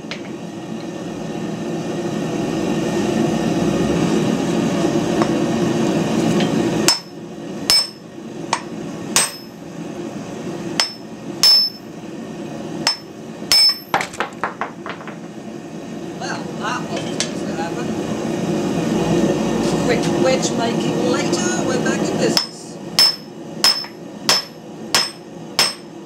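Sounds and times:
hammer striking hot steel bar: 6.4 - 9.5, 10.8 - 11.8, 12.8 - 14.2, 22.4 - 25.9.

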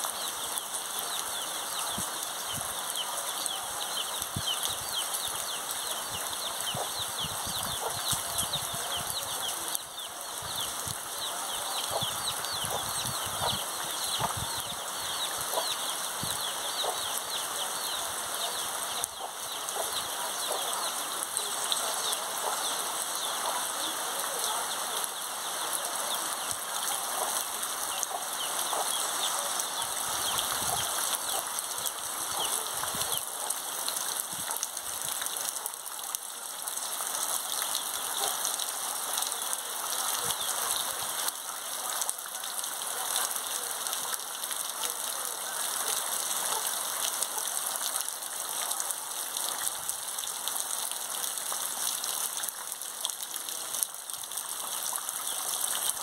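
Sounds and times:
heavy rain falling: 0.0 - 56.0
chicken chicks peeping: 1.3 - 20.9, 27.9 - 31.5.

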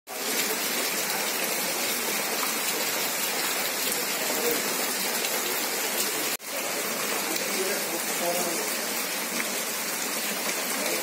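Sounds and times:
heavy rain on street: 0.1 - 11.0.

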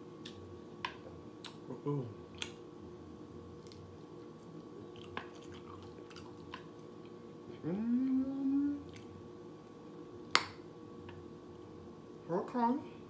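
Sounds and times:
person chewing chicken: 3.6 - 7.2
person humming through food: 7.5 - 9.0.

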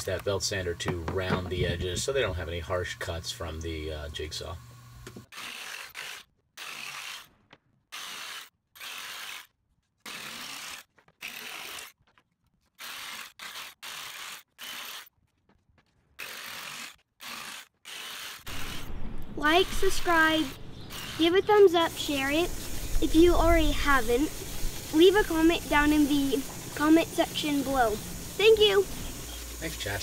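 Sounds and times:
jigsaw cutting plywood: 5.2 - 12.0, 12.8 - 15.1, 16.2 - 18.9, 19.7 - 21.7.

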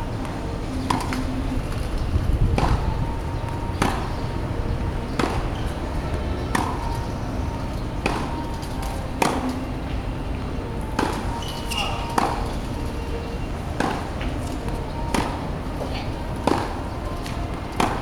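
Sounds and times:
tennis ball hit by rackets: 0.8 - 1.3, 2.5 - 3.0, 3.7 - 4.2, 5.0 - 7.0, 8.0 - 9.6, 10.9 - 12.6, 13.8 - 15.4, 16.4 - 18.0.

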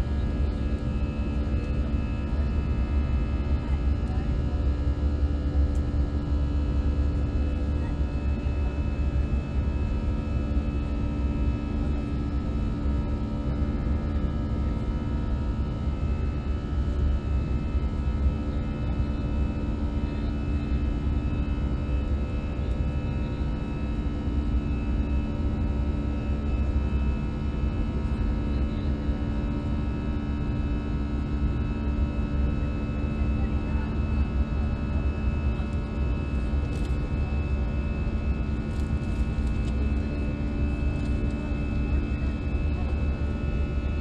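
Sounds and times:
airliner cabin rumble: 33.2 - 44.0.

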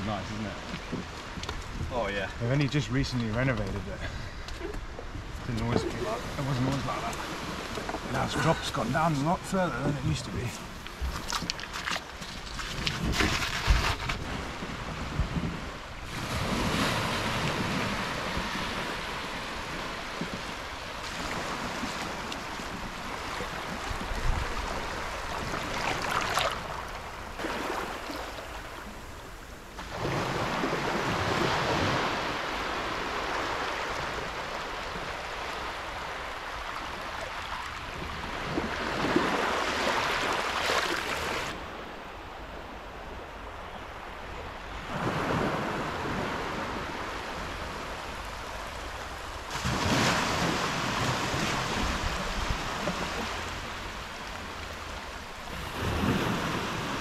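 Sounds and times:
wind on the microphone: 0.0 - 3.9, 10.0 - 27.8, 42.4 - 53.8
small waves lapping on a beach: 0.0 - 57.0.

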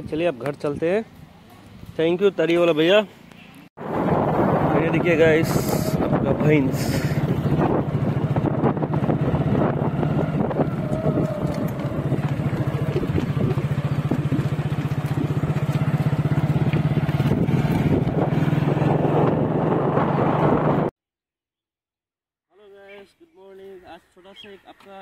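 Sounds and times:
motorcycle engine running: 3.8 - 20.9.

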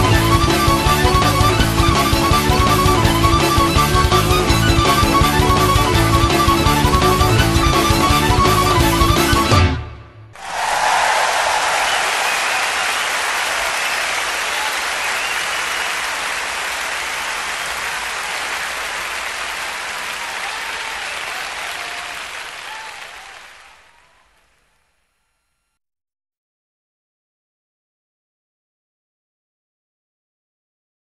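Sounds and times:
large audience applauding: 10.4 - 24.7.

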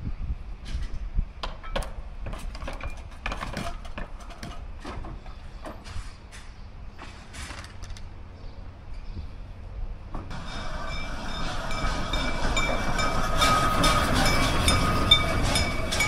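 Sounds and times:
wind buffeting microphone: 0.0 - 6.9.

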